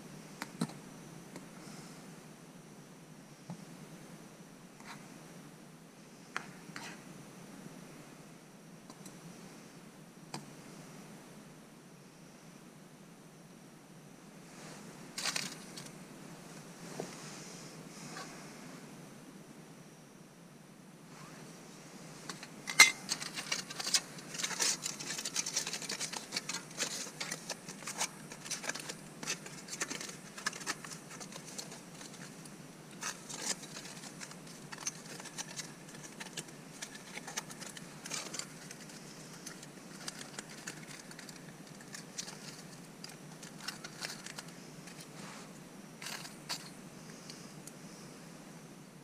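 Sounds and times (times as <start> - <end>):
clinks and scrapes: 14.6 - 16.0, 22.2 - 47.4
wrapping crinkling: 15.2 - 15.9, 22.3 - 45.4
metal cookware clacking: 22.7 - 23.3.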